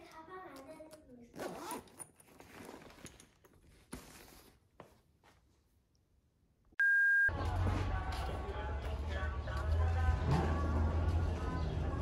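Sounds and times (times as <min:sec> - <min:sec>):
electronic beep: 0:06.8 - 0:07.4
background music: 0:07.3 - 0:12.0.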